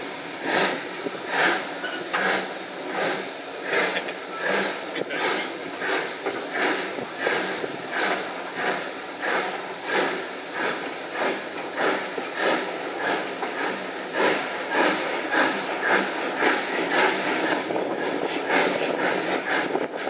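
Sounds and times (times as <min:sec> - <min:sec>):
steam locomotive chuffing: 0:00.0 - 0:20.0.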